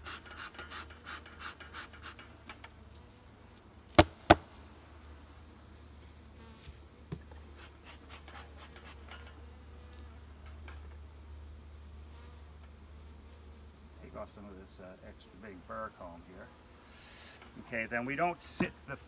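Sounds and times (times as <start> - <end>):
bee smoker bellows puffing: 0.0 - 2.8, 7.2 - 9.6, 16.7 - 19.0
honeybees buzzing faintly: 0.0 - 19.0
loud sharp knocks of hive cover: 4.0 - 4.5.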